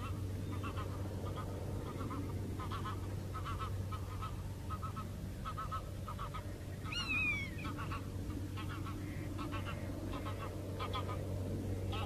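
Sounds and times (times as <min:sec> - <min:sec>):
birds calling: 0:00.0 - 0:12.0
steady low hum: 0:00.0 - 0:12.0
downward-sliding whistled call: 0:06.9 - 0:07.7.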